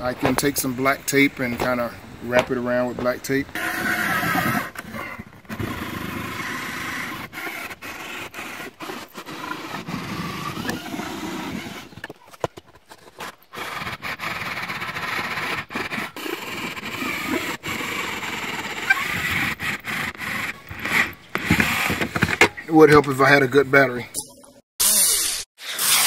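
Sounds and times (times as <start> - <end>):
drill bit grinding and scraping: 0.3 - 12.2, 12.8 - 23.4, 24.8 - 26.0
cordless drill boring: 13.5 - 22.4, 24.8 - 26.0.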